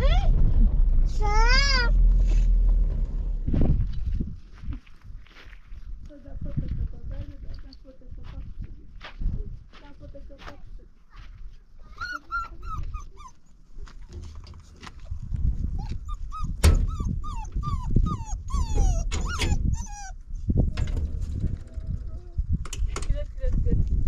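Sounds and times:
low rumble: 0.0 - 9.6, 14.2 - 24.0
dog yelping and whimpering: 11.9 - 13.6, 15.7 - 20.5.

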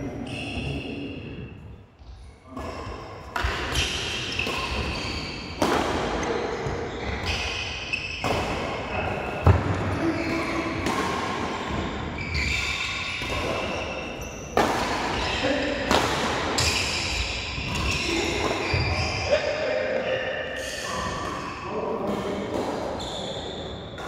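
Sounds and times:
rackets striking shuttlecock: 3.3 - 8.8.

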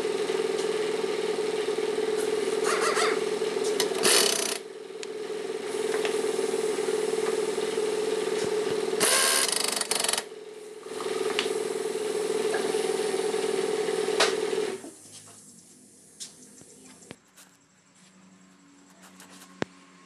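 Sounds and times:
power tool humming: 0.0 - 14.9.

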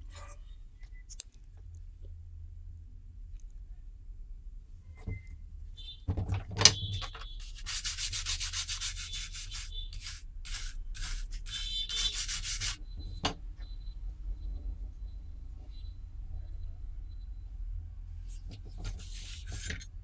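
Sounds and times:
stiff brush scrubbing circuit board: 6.9 - 12.8, 18.4 - 20.0.

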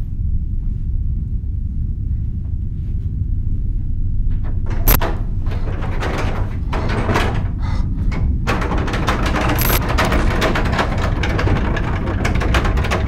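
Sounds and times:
low rumble: 0.0 - 12.6
crackles and clicks: 4.3 - 5.1, 8.5 - 13.0.

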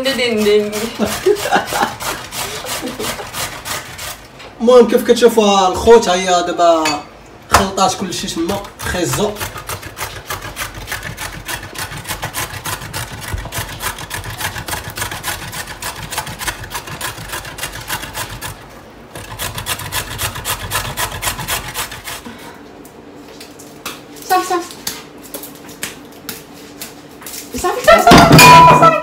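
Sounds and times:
carrot grated on metal grater: 0.0 - 4.3, 8.2 - 22.2.

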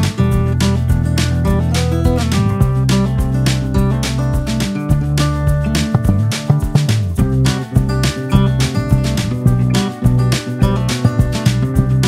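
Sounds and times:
upbeat acoustic guitar music: 0.0 - 12.0.

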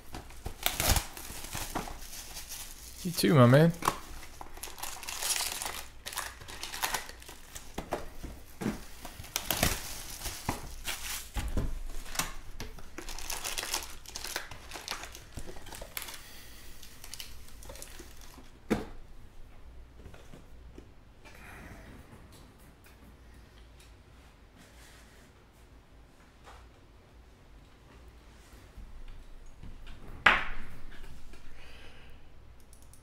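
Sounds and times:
foil packs crinkling: 0.0 - 18.6.

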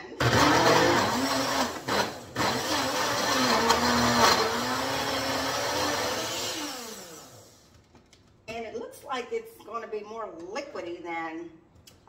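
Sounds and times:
blender motor running: 0.2 - 7.7.

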